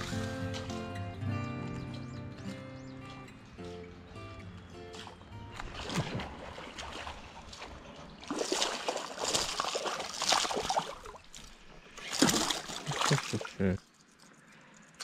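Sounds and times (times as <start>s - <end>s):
water sloshing and splashing: 4.8s - 14.3s.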